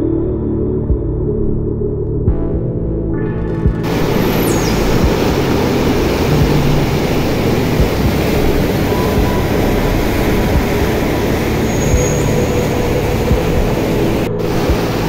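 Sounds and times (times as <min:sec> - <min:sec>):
water roaring over rocks: 0:03.8 - 0:15.0.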